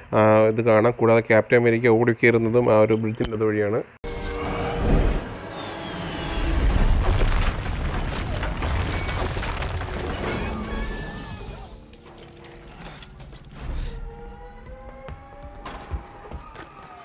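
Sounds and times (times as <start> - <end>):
music: 4.0 - 7.0, 11.1 - 17.0
debris breaking and shattering: 6.8 - 13.4.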